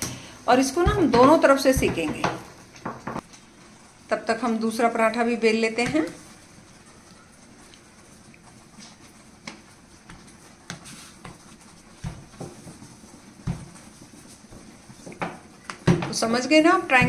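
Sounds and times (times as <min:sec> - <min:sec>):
rolling pin knocking on marble board: 0:00.8 - 0:03.2.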